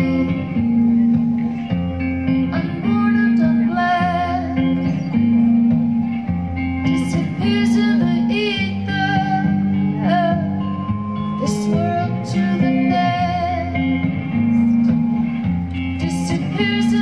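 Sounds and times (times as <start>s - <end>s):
woman singing: 0.0s - 1.0s, 2.3s - 5.1s, 6.8s - 14.3s, 15.8s - 17.0s
electric guitar: 0.0s - 17.0s
low held chords: 0.0s - 17.0s.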